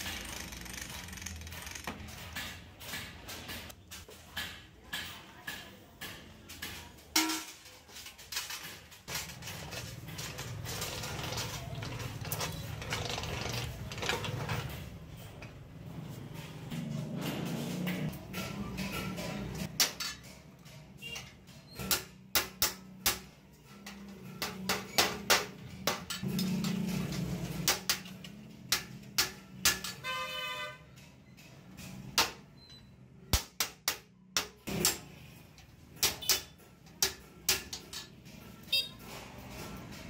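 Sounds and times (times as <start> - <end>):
hammer tapping metal bucket: 4.3 - 7.8.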